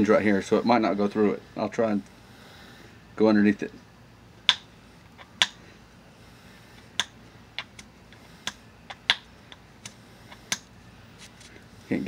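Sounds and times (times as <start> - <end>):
billet striking stone clicks: 4.4 - 5.6, 6.9 - 10.7.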